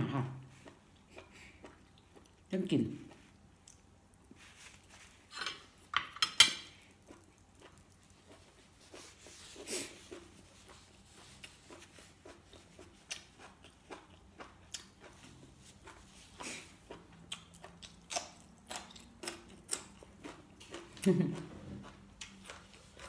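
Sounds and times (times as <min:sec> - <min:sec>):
chewing and mouth noises: 0:00.4 - 0:05.3, 0:06.7 - 0:23.0
cutlery clinking on plate: 0:05.3 - 0:06.8.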